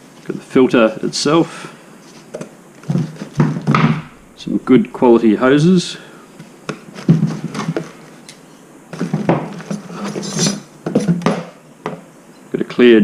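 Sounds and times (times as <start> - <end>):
hoses and metal parts handled: 6.4 - 11.3.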